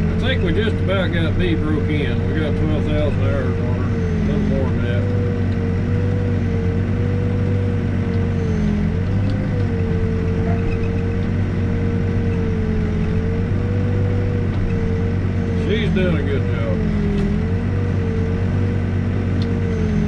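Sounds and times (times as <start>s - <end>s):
backhoe engine and hydraulics: 0.0s - 20.0s.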